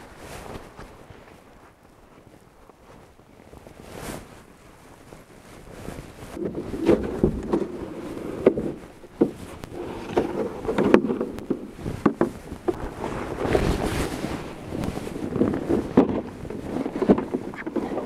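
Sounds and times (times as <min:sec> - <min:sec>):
snow crunching: 0:00.0 - 0:18.0
wind rumble on microphone: 0:00.0 - 0:18.0
gear rustling: 0:05.5 - 0:17.8.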